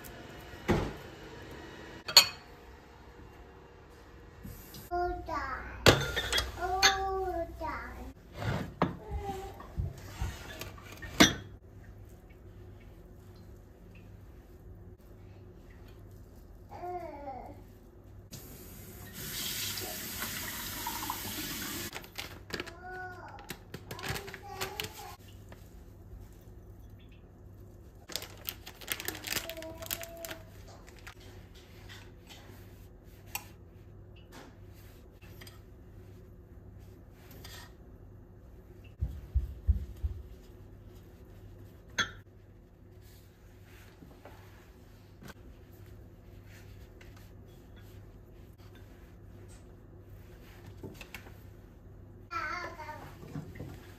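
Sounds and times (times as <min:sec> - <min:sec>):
packaging and utensils clicking: 0:28.1 - 0:31.2.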